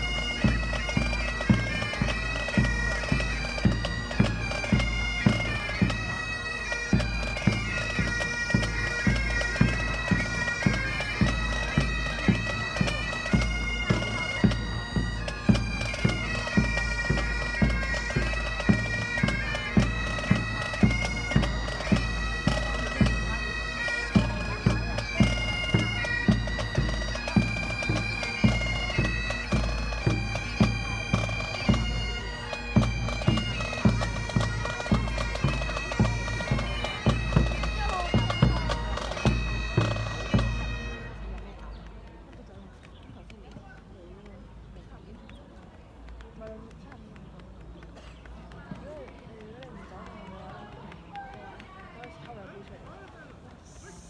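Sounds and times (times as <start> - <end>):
bagpipes playing: 0.0 - 41.4
drums beating: 0.0 - 41.4.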